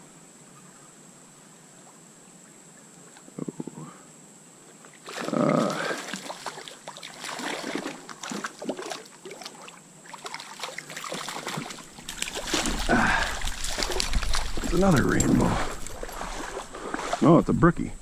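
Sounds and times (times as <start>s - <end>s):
water splashing in a stream: 4.9s - 17.4s.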